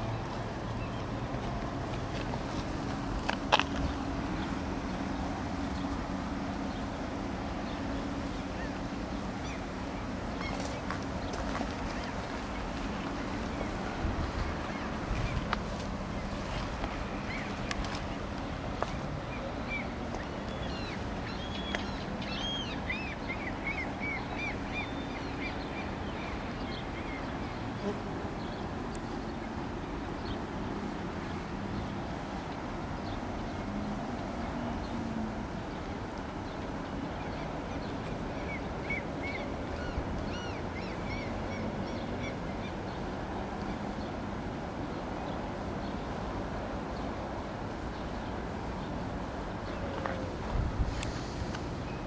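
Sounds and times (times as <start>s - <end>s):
outdoor background rumble: 0.0s - 52.0s
outdoor hiss: 50.4s - 52.0s.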